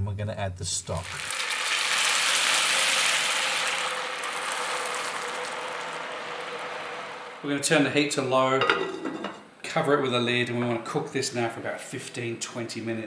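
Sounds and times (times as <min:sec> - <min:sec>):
stock sizzling in hot pan: 0:00.9 - 0:07.6.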